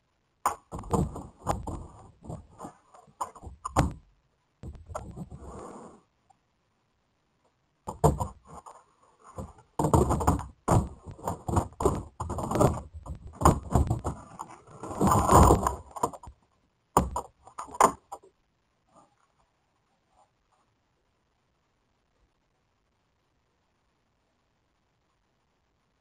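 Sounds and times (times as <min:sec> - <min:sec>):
plastic bins rattling and scraping: 0:00.5 - 0:04.0, 0:07.9 - 0:16.4.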